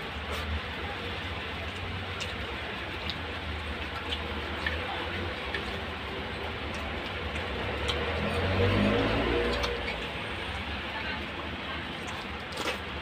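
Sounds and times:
chewing clicks and smacks: 6.6s - 10.1s.

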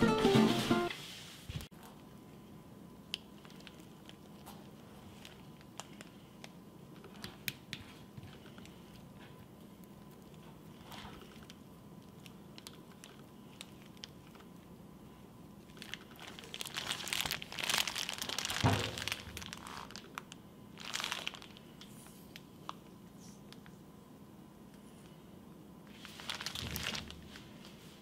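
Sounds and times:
plastic bag crinkling: 3.2s - 7.4s, 10.1s - 14.6s, 15.6s - 21.8s, 25.9s - 27.7s.

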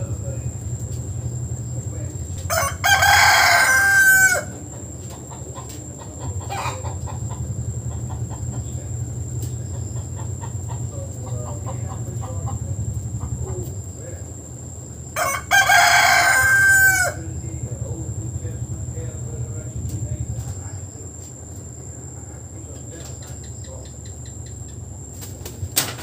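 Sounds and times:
rooster crowing: 0.5s - 13.3s, 14.6s - 19.4s
soft clucks: 4.5s - 14.0s, 19.9s - 25.6s.

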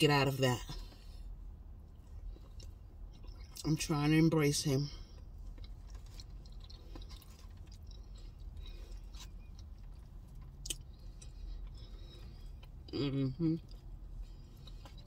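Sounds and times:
wet chewing: 5.0s - 12.9s.

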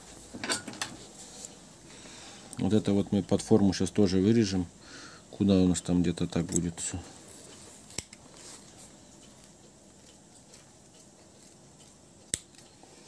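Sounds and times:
small scissors snipping: 7.9s - 8.2s, 9.3s - 12.8s.

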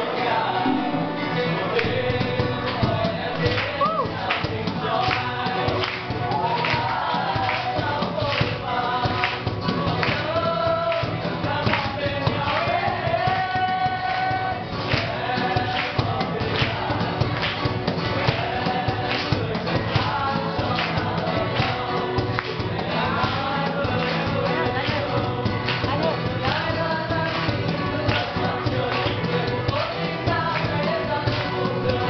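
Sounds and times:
acoustic guitar: 0.0s - 32.0s
men singing: 0.0s - 32.0s
cajon drum beating: 0.6s - 32.0s.

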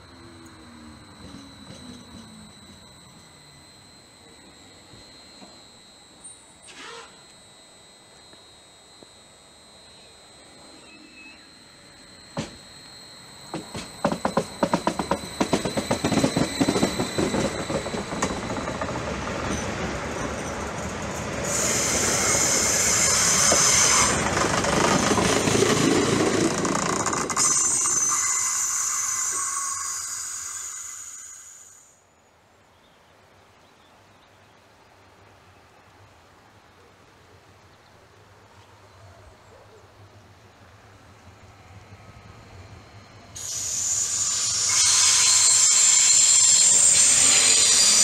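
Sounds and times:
train wheels clacking on track: 13.5s - 27.9s
train hissing and humming: 13.5s - 32.0s, 41.4s - 48.0s.

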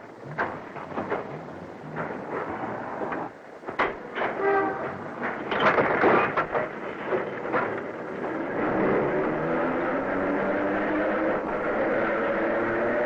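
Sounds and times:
train rumble with whine: 0.0s - 13.0s
metal gates knocking and clattering: 0.2s - 8.4s.

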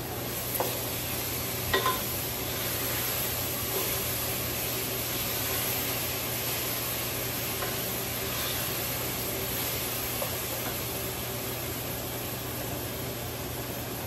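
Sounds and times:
food sizzling in a pan: 0.0s - 14.0s
metal utensil clinking on pan: 1.7s - 2.1s.

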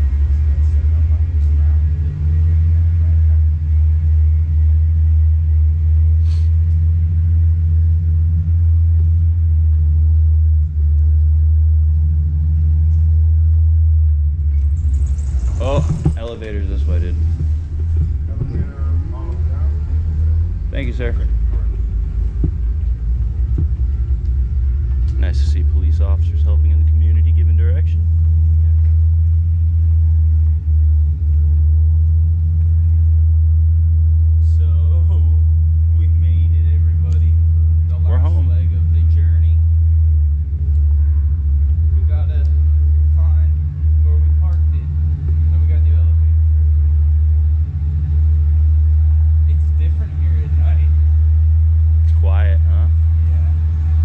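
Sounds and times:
power wheelchair rumbling: 0.0s - 54.0s
wheelchair motors humming: 14.5s - 25.2s.

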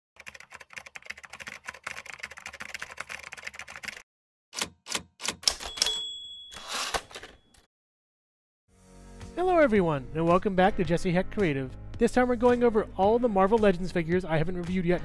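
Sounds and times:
typewriter keys clacking: 0.2s - 4.0s, 4.6s - 7.4s
typewriter bell ding: 5.4s - 7.6s.

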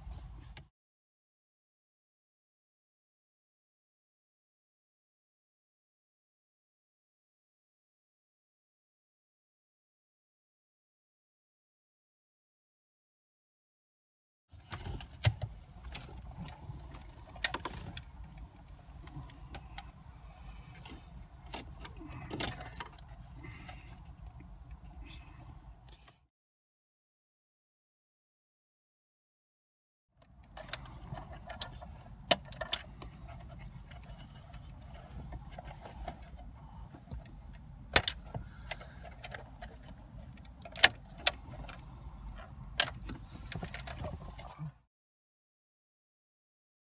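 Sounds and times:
low steady rumble: 14.6s - 26.2s, 30.2s - 44.7s.

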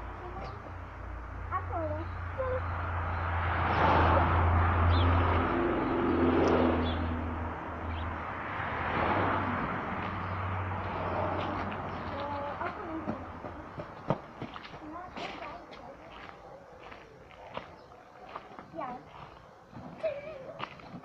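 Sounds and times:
vehicle passing: 0.0s - 20.8s.

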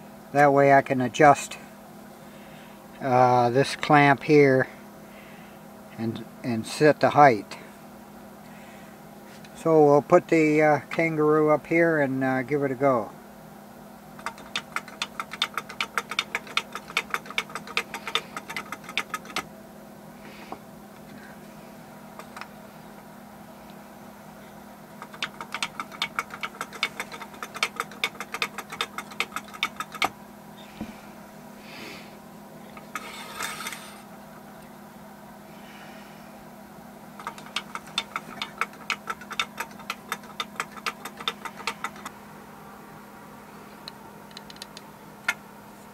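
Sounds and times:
wooden toy clattering on board: 14.2s - 19.4s, 25.0s - 30.1s, 37.2s - 42.1s.

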